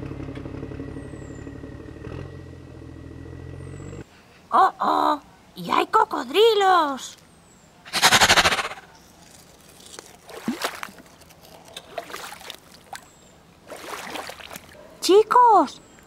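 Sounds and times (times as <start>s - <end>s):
loud rasping burst: 7.9s - 8.9s
puddle water trickling and splashing: 9.7s - 14.8s.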